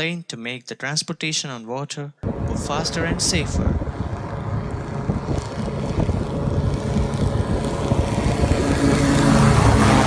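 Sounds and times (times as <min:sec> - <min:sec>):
wind: 0:00.0 - 0:10.0
water noise: 0:02.2 - 0:10.0
motor running: 0:02.3 - 0:10.0.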